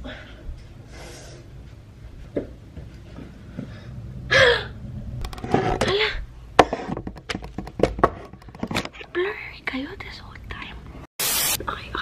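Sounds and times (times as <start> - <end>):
woman gasping: 4.3 - 4.8.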